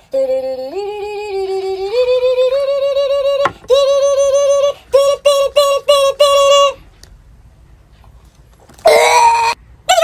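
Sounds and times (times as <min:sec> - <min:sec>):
high-pitched voice singing: 0:00.0 - 0:06.8, 0:08.9 - 0:10.0.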